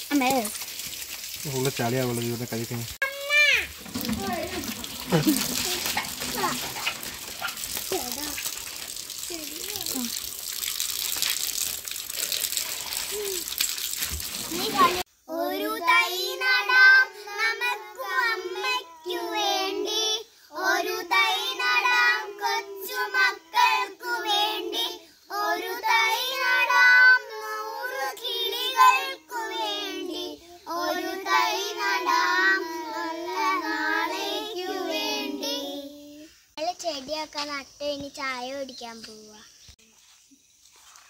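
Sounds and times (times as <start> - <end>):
girls singing in unison: 15.4 - 36.1.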